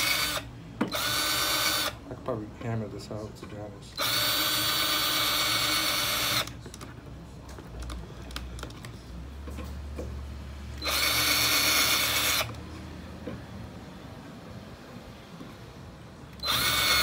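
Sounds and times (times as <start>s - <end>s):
cordless drill motor whine: 0.0s - 2.0s, 4.0s - 6.5s, 10.8s - 12.6s, 16.4s - 17.0s.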